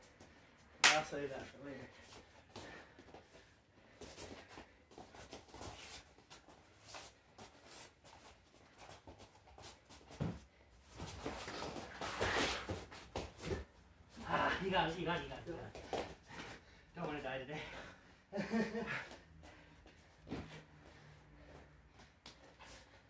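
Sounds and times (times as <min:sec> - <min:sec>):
hands slapping: 0:00.8 - 0:01.2
feet scuffing on mat: 0:02.0 - 0:13.7.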